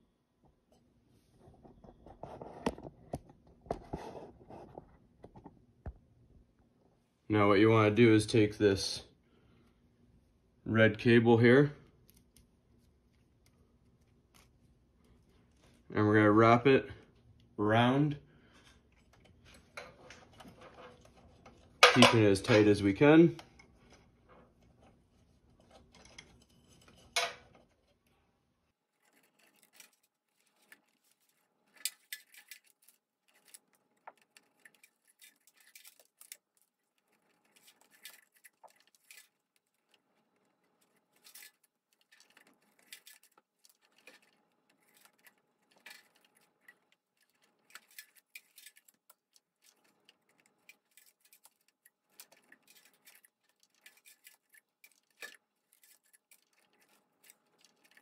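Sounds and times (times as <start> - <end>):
wire clicking and rubbing on pipe: 11.0 - 58.0.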